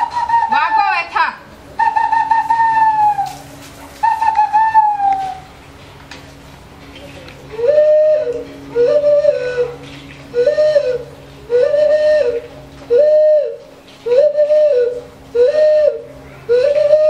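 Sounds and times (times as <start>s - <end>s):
hooting hand whistle: 0.0s - 1.0s, 1.8s - 5.5s, 7.5s - 17.0s.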